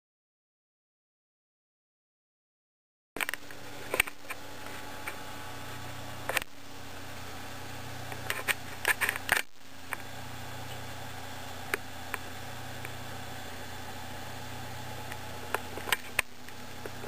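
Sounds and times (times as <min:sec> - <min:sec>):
low electrical hum: 0:03.2 - 0:17.0.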